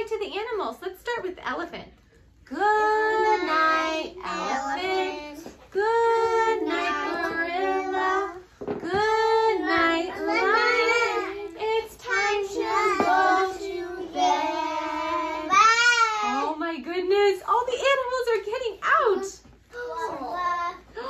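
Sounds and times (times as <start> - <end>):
young children singing: 2.6 - 16.4.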